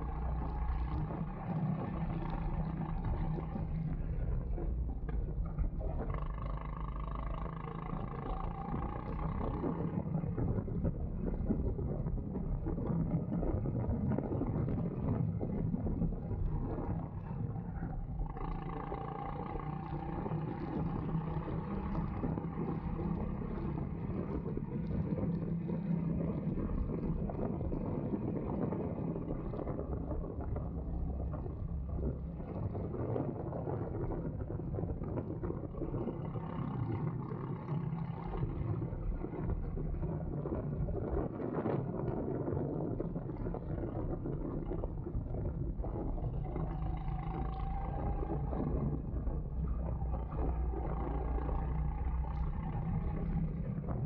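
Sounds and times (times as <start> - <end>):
go-kart engine running: 18.0 - 27.2, 46.3 - 54.0.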